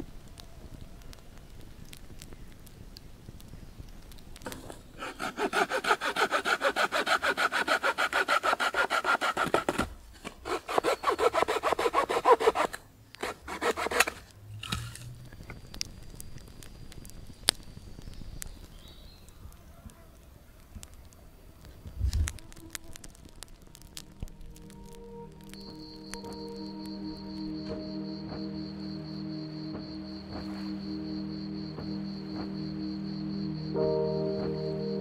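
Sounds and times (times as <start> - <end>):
hand saw cutting branch: 4.5 - 15.0
branch snapping: 21.8 - 26.4.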